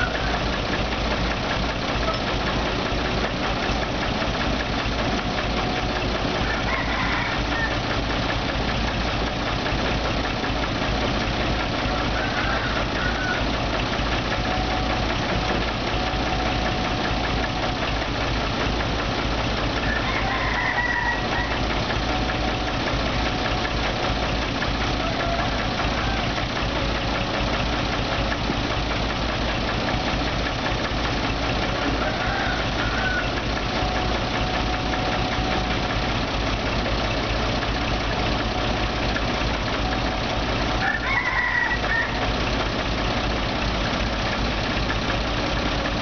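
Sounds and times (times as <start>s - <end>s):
diesel excavator engine: 0.0s - 46.0s
rooster crowing: 6.4s - 7.9s, 12.0s - 13.6s, 19.8s - 22.3s, 25.0s - 26.3s, 31.8s - 33.4s, 40.7s - 42.3s.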